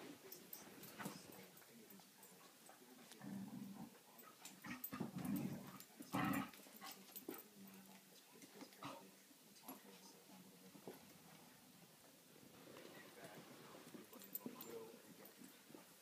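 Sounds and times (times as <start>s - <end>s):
dogs play-growling: 2.4s - 7.5s.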